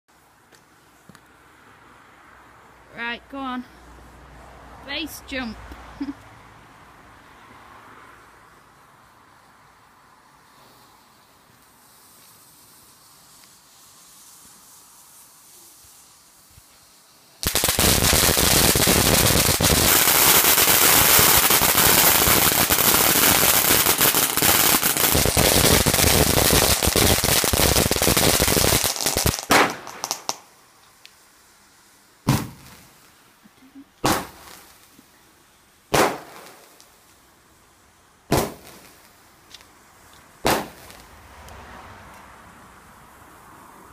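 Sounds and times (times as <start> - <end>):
firework fountain hissing: 8.7 - 43.9
firework bangs: 11.8 - 30.5, 32.2 - 33.2, 34.0 - 34.9, 35.9 - 37.0, 38.3 - 39.2, 40.4 - 41.4.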